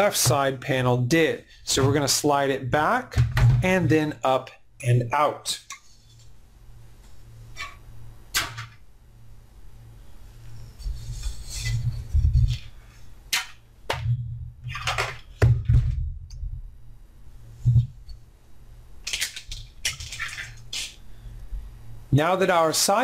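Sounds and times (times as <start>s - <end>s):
metal case knocks and thuds: 3.2s - 3.8s
scraping and rustling: 10.4s - 12.8s.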